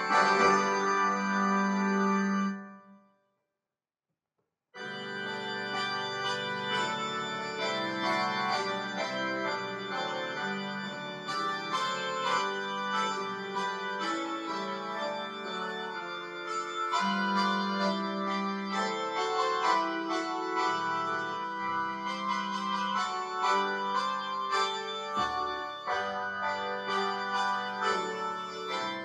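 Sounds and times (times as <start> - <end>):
electronic organ chords and melody: 0.0 - 3.0, 4.8 - 29.0.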